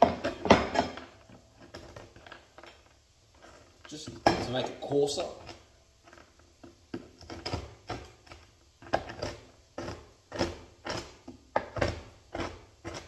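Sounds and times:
knife chopping nuts on board: 0:06.9 - 0:13.0.

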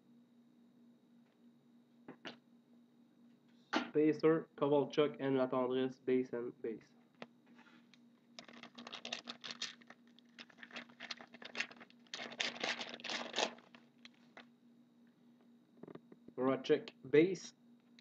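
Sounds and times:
foil wrapper crinkling: 0:08.4 - 0:14.4.

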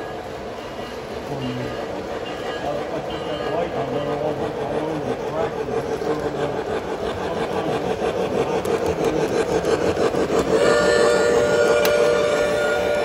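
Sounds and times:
wheels rattling on track: 0:00.0 - 0:13.0
model train motor whir: 0:01.8 - 0:13.0.

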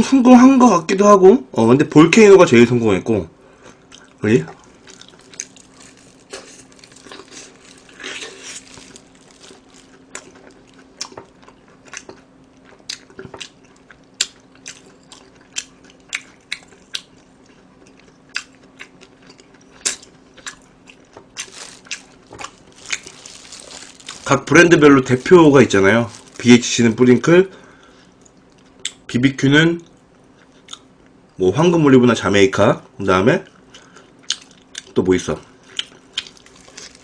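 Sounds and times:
chewing crispy fried chicken: 0:03.6 - 0:27.1, 0:33.4 - 0:37.0.

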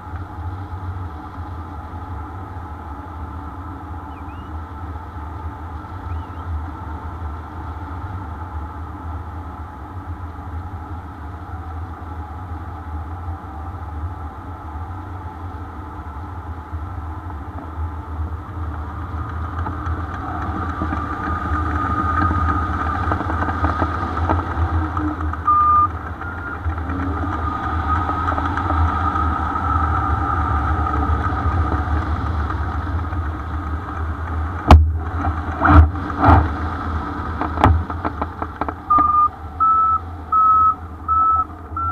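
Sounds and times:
whistle-like wind tone: 0:04.1 - 0:04.6, 0:06.0 - 0:06.5, 0:25.4 - 0:31.2, 0:38.9 - 0:41.9
wind rushing over microphone: 0:11.5 - 0:41.0.

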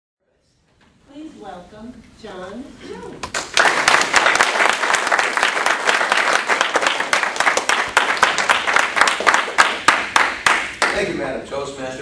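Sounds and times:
audience applauding: 0:03.3 - 0:11.1.

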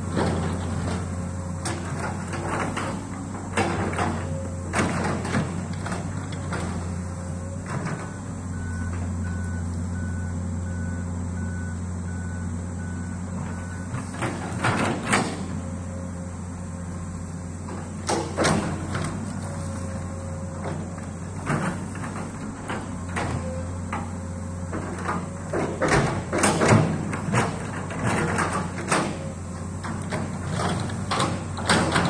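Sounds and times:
distant diesel engine running: 0:00.0 - 0:32.0
machine clanks and squeals: 0:00.1 - 0:10.2, 0:12.8 - 0:32.0
short alarm beeps: 0:08.5 - 0:14.0.

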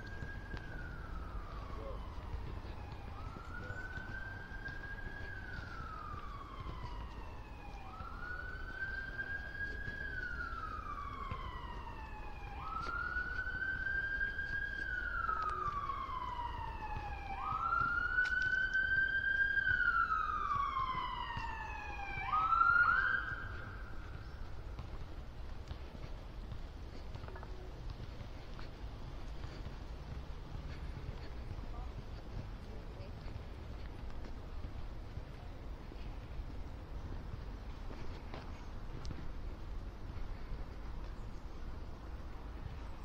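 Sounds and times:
emergency siren wailing: 0:00.0 - 0:43.0.

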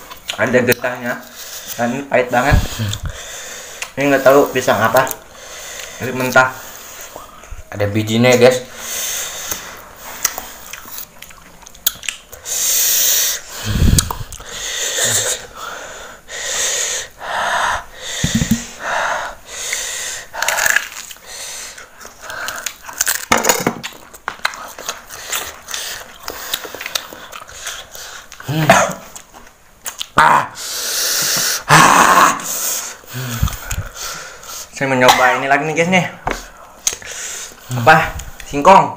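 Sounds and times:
sharp hissing breaths: 0:01.2 - 0:04.5, 0:05.3 - 0:07.5, 0:08.7 - 0:10.7, 0:12.3 - 0:22.8, 0:30.6 - 0:31.7, 0:32.4 - 0:34.8, 0:36.4 - 0:37.8
low thumps: 0:18.2 - 0:18.7.

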